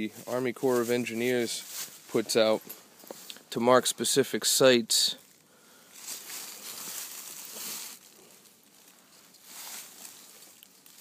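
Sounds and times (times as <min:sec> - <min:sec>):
footsteps in dry leaves: 0:00.1 - 0:03.3, 0:05.9 - 0:11.0.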